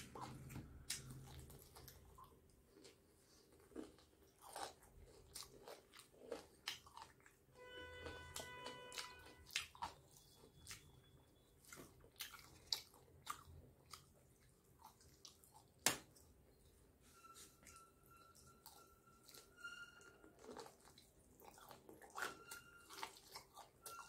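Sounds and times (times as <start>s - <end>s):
chewing crispy fried chicken: 0.0s - 16.5s, 18.4s - 24.0s
brief pitched tone: 17.0s - 20.4s.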